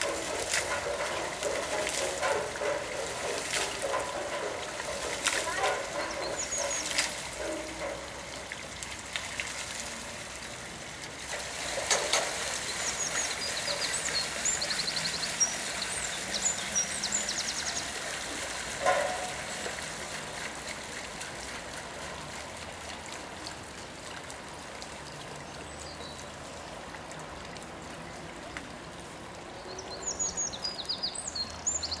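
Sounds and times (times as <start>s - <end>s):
water splashing and trickling: 0.0s - 32.0s
small birds chirping: 5.5s - 7.0s.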